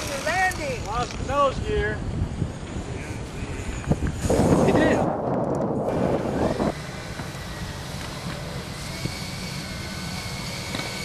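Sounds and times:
loud rushing noise: 4.2 - 10.1
model jet engines whining: 5.9 - 11.0.

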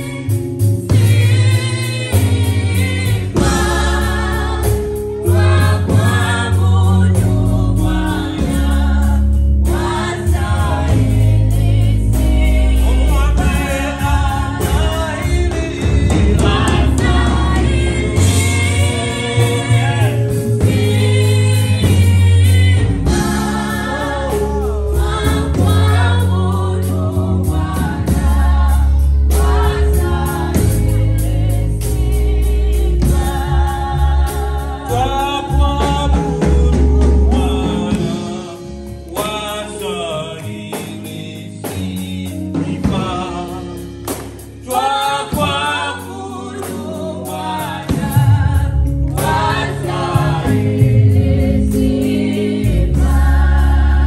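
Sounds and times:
deep sustained bass notes: 0.0 - 39.2
keyboard accompaniment: 0.0 - 54.0
man singing with vibrato: 12.8 - 17.3, 34.9 - 43.9.

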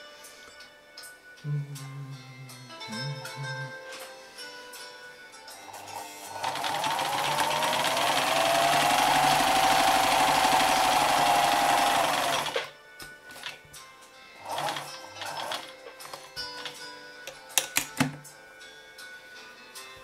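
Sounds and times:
sewing machine running: 5.8 - 12.7, 14.4 - 15.7.

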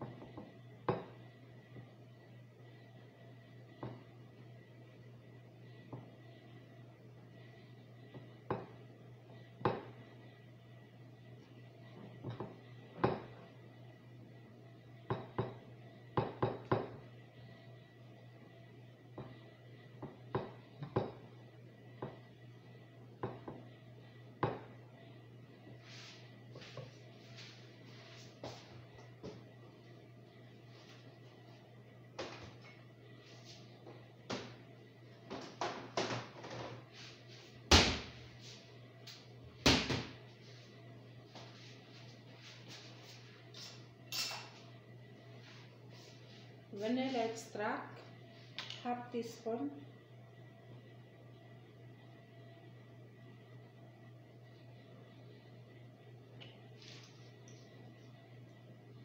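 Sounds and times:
low hum: 40.1 - 59.0.

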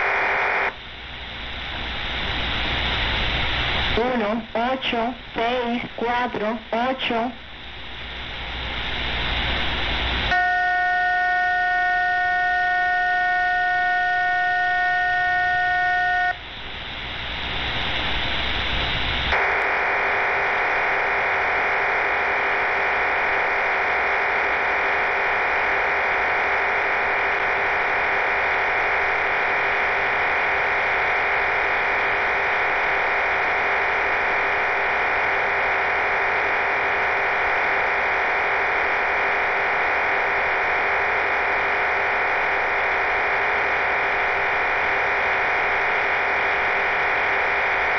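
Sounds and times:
radio static: 0.0 - 47.9
chord of steady tones: 10.3 - 16.4.

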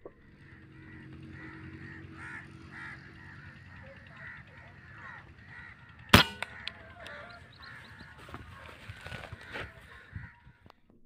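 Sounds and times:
birds calling: 0.0 - 10.8
air rifle shot: 6.1 - 6.8.

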